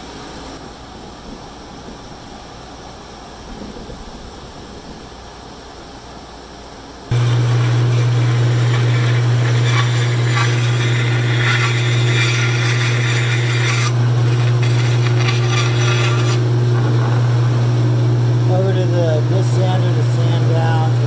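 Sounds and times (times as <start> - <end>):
bandsaw blade cutting wood: 7.1 - 17.4
bandsaw motor hum: 7.1 - 21.0.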